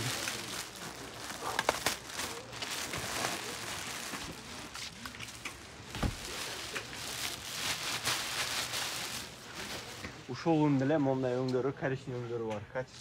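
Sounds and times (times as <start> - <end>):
plastic garment cover rustling: 0.0 - 10.4.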